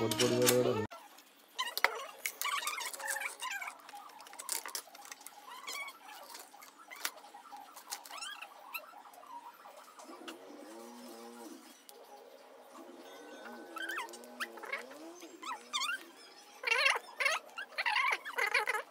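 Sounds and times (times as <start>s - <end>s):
plastic parts clicking and tapping: 1.6s - 8.4s
high squeaky chirps: 1.6s - 11.8s, 12.7s - 18.9s.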